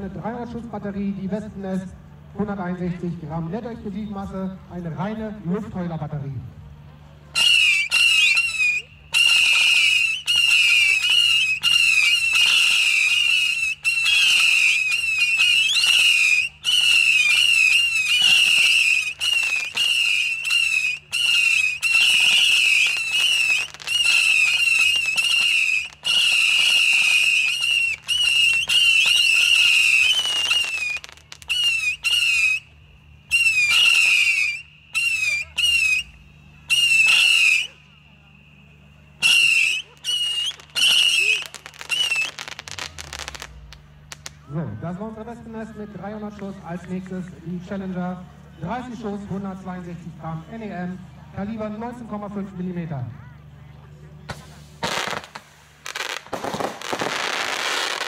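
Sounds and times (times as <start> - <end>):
shrill firework whistles: 7.3 - 46.9, 54.3 - 58.0.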